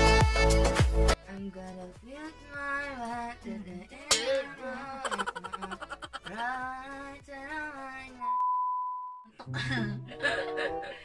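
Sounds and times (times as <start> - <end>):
music with sung vocals: 0.0 - 8.4.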